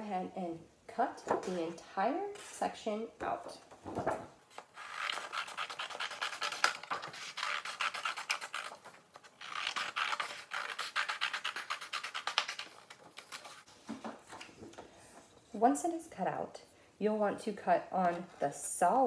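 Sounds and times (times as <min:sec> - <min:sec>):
scissors cutting paper: 0:04.6 - 0:13.6.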